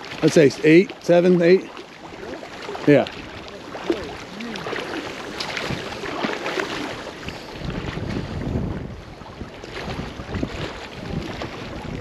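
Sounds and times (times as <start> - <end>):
lake water splashing and lapping: 0.0 - 12.0
wind buffeting microphone: 2.8 - 12.0.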